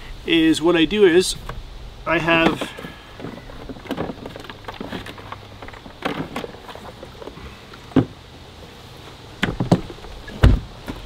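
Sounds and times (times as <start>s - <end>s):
plastic containers knocking in cooler: 2.3s - 7.2s.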